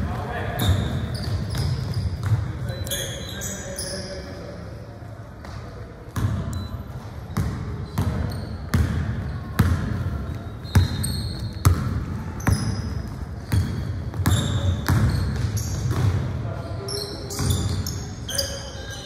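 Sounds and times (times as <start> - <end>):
basketball bouncing on hard floor: 7.4 - 9.9, 10.7 - 12.8, 13.4 - 16.2.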